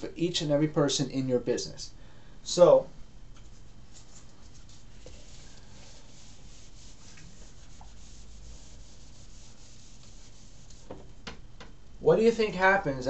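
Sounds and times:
eraser rubbing a whiteboard: 3.9s - 11.0s.

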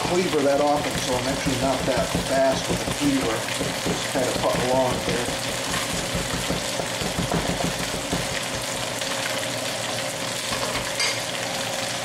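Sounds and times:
chicken sizzling in oil: 0.0s - 12.0s
cleaver chopping on wooden board: 0.6s - 8.8s.

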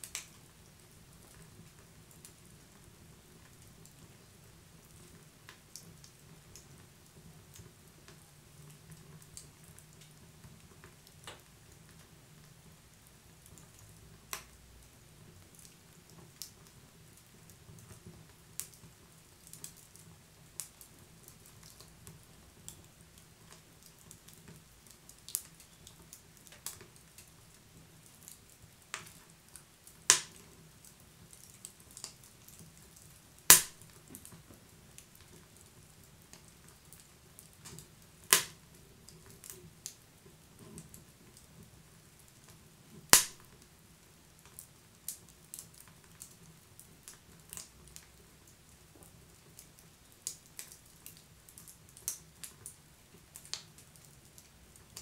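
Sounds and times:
wood fire crackling: 0.0s - 55.0s
loud pops from fire: 30.0s - 30.5s, 33.4s - 34.4s, 37.6s - 38.6s, 43.0s - 43.6s.

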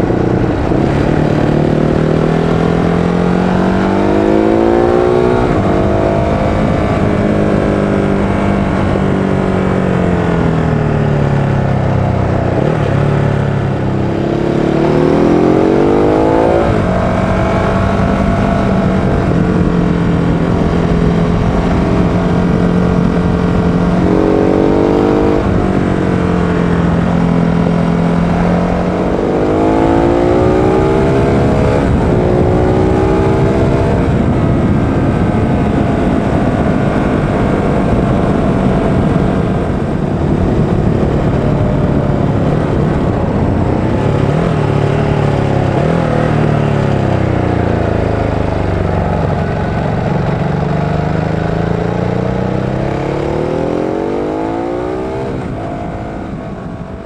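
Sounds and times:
motorcycle engine revving: 0.0s - 57.0s
wind rush: 0.0s - 57.0s.

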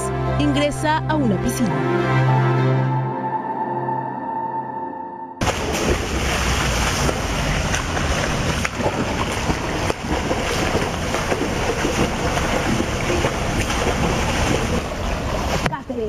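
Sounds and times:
swimmer splashing in pool: 5.4s - 15.8s.

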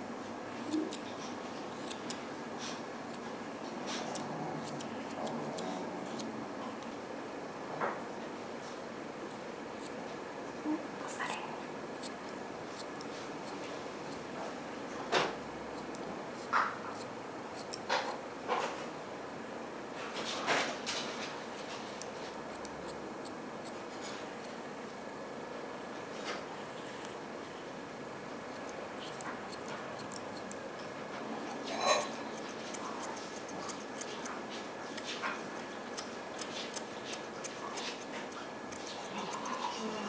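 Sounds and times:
scissors snipping fur: 0.6s - 6.3s, 11.2s - 12.2s, 12.8s - 14.2s, 15.7s - 18.2s, 20.9s - 24.6s, 28.5s - 30.6s, 31.4s - 39.9s
light clicks of scissor blades: 28.6s - 30.6s.

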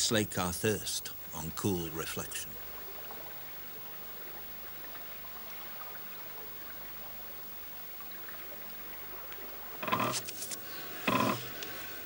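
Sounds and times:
water trickling: 1.2s - 12.0s
water drips: 2.5s - 10.6s.

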